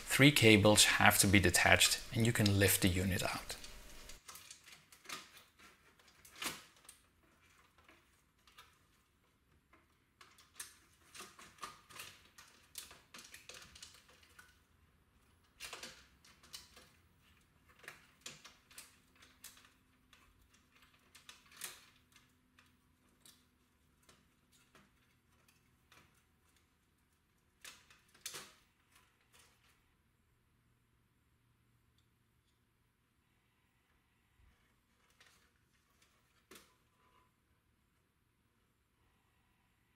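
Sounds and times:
plastic clicks and rattles: 3.2 - 29.8.

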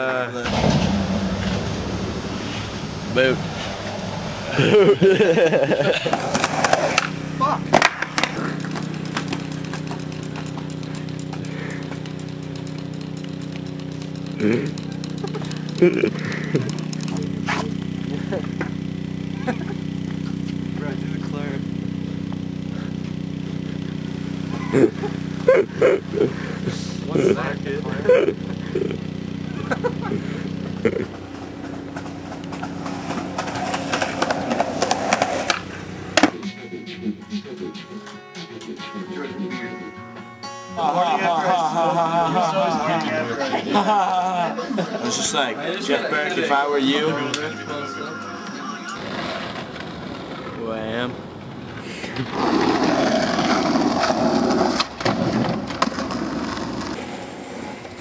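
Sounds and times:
low engine hum: 0.0 - 37.7
skateboard wheels rolling on wood: 3.6 - 18.8, 31.1 - 36.4, 49.0 - 58.0
skateboard clacks: 5.9 - 17.7, 31.9 - 36.5, 52.1 - 58.0
brief voices: 47.1 - 49.4.

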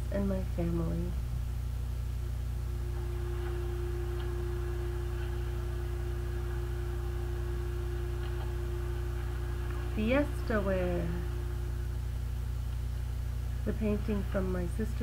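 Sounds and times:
low electrical hum: 0.0 - 15.0
steady higher tone: 2.3 - 14.2.

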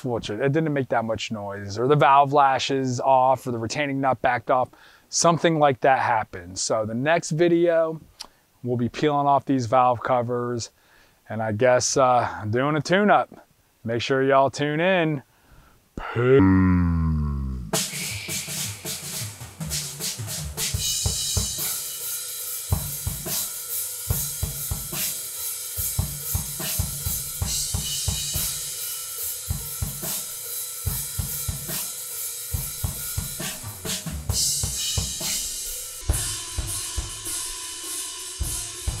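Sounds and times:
drum kit beat: 17.6 - 39.0.

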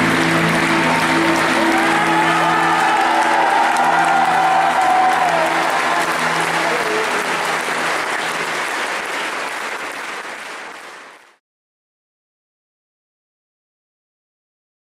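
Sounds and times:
audience applauding: 0.0 - 11.4.

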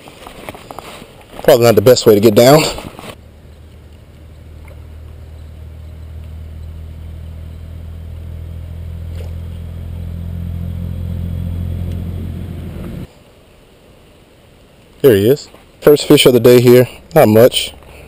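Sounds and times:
low engine drone: 3.2 - 13.1.

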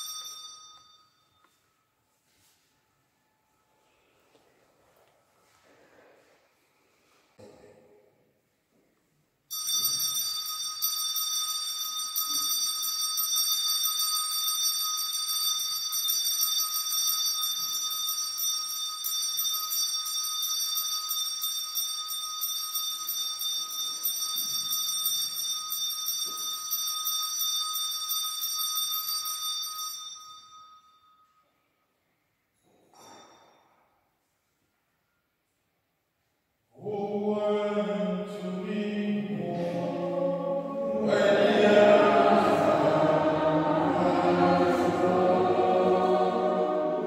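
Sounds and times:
bells jingling: 0.0 - 1.8, 9.5 - 31.5, 32.6 - 33.9.

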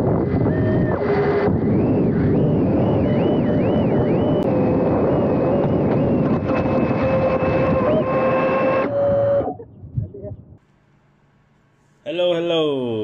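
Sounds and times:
rushing air: 0.0 - 8.7
small electric motors whining: 0.0 - 9.5.

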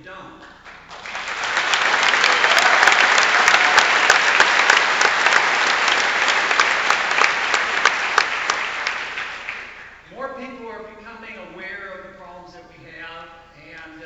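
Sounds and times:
large audience applauding: 0.6 - 10.0.

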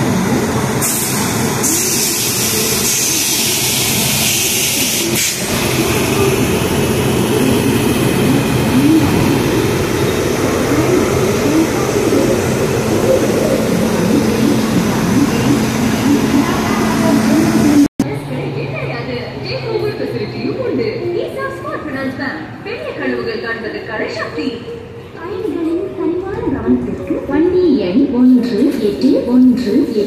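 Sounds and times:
locomotive machinery hissing: 0.7 - 17.9.

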